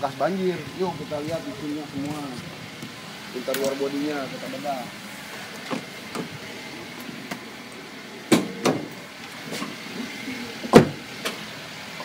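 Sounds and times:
car bonnet knocks and clunks: 8.3 - 8.9, 10.7 - 11.0.

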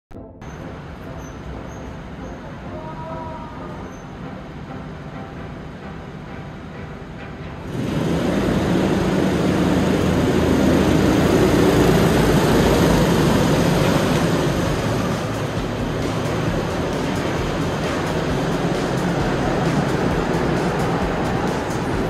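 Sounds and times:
go-kart engines running: 7.6 - 22.0.

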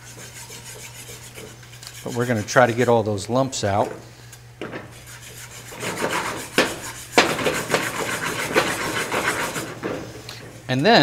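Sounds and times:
whisk scraping a pan: 0.0 - 10.8
whisk knocking against pan: 5.6 - 10.6.

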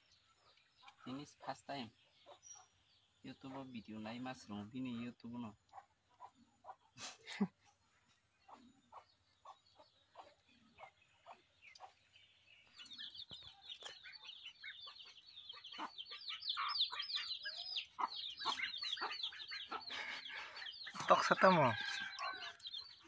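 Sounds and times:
high short peeping calls: 0.0 - 23.0
chickens clucking: 5.5 - 23.0.

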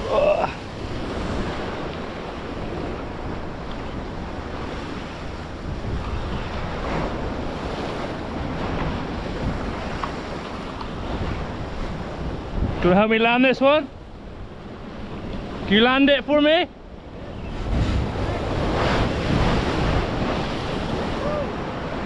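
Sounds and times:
wind buffeting microphone: 0.0 - 15.8, 16.6 - 22.0
sea waves washing on shore: 0.0 - 22.0.

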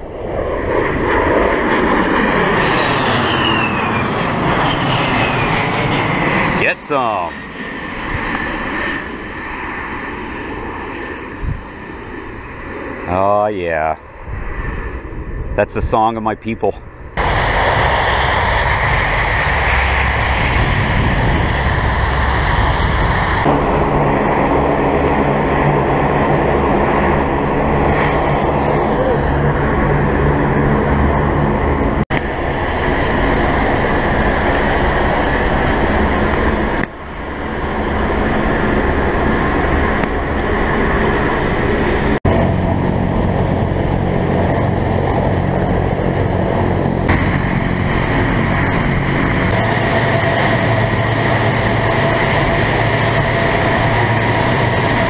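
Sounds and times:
high steady whine: 0.0 - 55.0
turboprop engines droning: 0.0 - 55.0.

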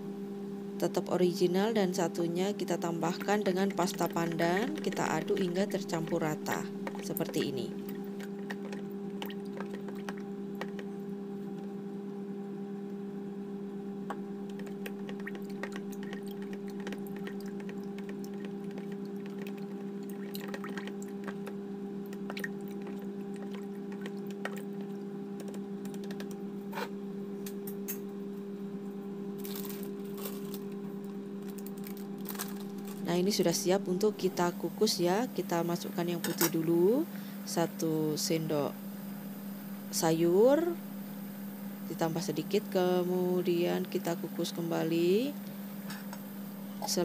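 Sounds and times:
steady hum: 0.0 - 47.0
spoon stirring wet batter: 14.5 - 21.6.

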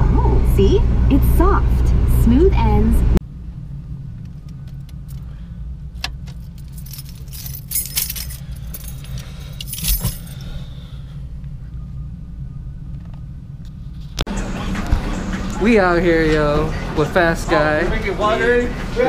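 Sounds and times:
car engine idling: 0.0 - 19.0
keys jangling: 6.2 - 10.4.

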